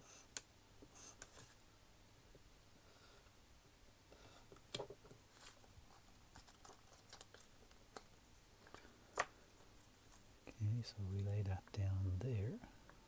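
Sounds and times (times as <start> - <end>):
paper rustling: 5.0 - 7.7.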